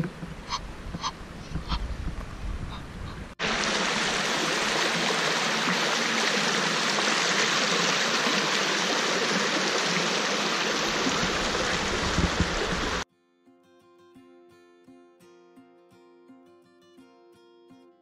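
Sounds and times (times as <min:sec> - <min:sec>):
water cascading over stone steps: 0:03.4 - 0:13.0.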